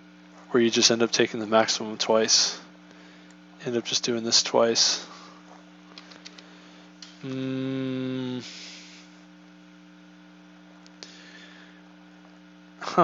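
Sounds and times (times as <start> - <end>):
electrical mains hum: 0.0 - 13.0
man humming: 7.1 - 9.2.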